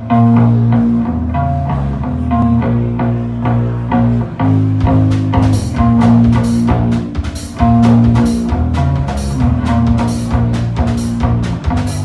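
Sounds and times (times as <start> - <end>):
amplified electric guitar: 0.0 - 12.0
drum and cymbal hits: 4.7 - 12.0.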